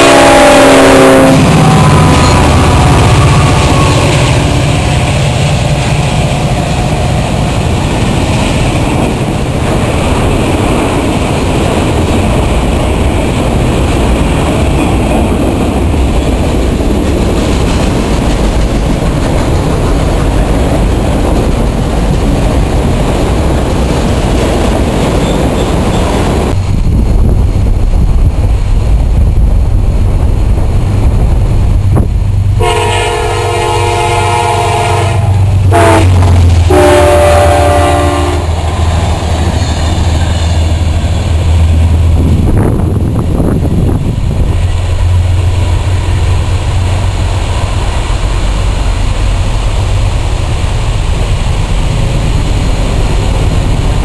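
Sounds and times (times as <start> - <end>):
multi-note locomotive horn: 0.0 - 5.1, 32.6 - 38.6
diesel locomotives: 0.0 - 54.0
train wheels clattering over rails: 1.5 - 28.6.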